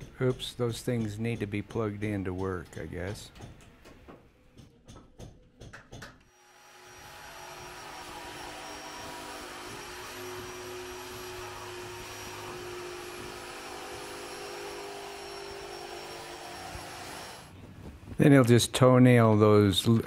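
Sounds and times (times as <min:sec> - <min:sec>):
jigsaw cutting wood: 0:06.3 - 0:17.5.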